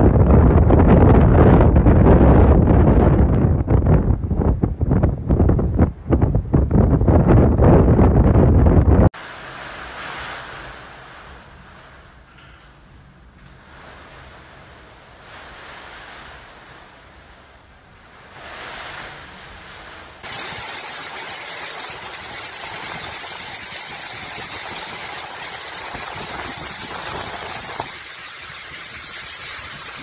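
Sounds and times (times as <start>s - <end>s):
strong gusting wind: 0.0s - 30.0s
heavy rain: 9.2s - 30.0s.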